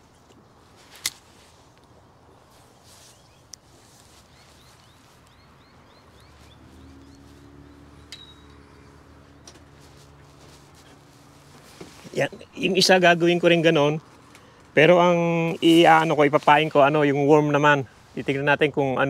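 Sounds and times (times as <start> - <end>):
bird chirping: 2.2 - 10.8.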